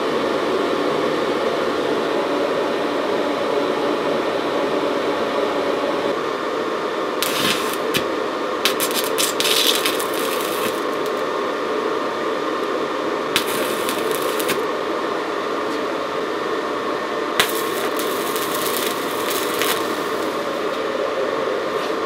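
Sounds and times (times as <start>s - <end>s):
welding arc crackling hiss: 7.2s - 8.1s, 8.7s - 11.3s, 13.3s - 14.7s, 17.4s - 20.7s.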